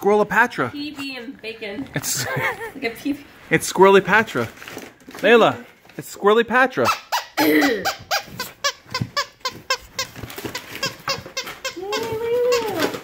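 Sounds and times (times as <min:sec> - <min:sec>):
dog toy squeaking: 0:06.7 - 0:13.0.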